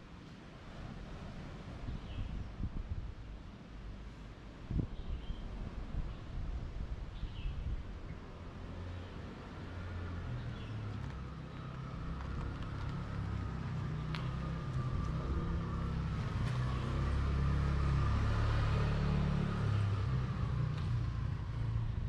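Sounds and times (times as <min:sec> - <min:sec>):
vehicle engine rumble passing: 0:07.8 - 0:22.0.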